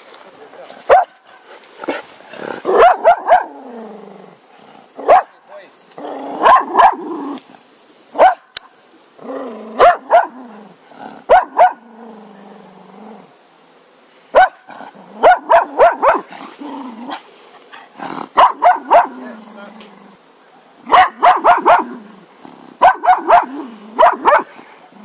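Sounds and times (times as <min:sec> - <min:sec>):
dog barking: 0:00.9 - 0:01.2, 0:02.7 - 0:03.5, 0:05.0 - 0:05.4, 0:06.4 - 0:07.0, 0:08.2 - 0:08.5, 0:09.8 - 0:10.4, 0:11.3 - 0:11.8, 0:14.3 - 0:16.3, 0:18.4 - 0:19.2, 0:20.9 - 0:21.9, 0:22.8 - 0:24.5.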